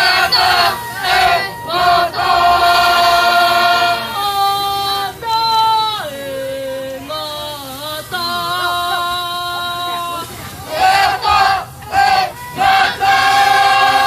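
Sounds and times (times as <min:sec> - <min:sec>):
choir singing in harmony: 0:00.0 - 0:05.3, 0:10.7 - 0:14.0.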